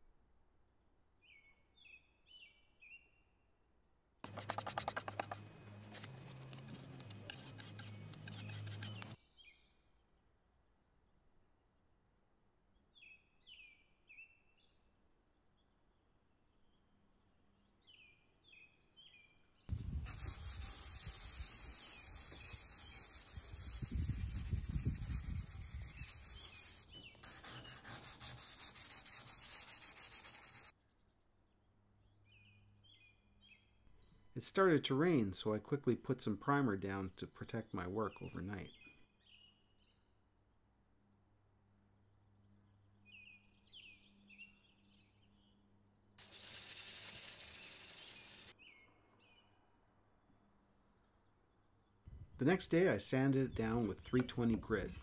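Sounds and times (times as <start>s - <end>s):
hand sanding with sandpaper: 4.3s - 9.2s, 19.7s - 30.7s, 46.2s - 48.5s.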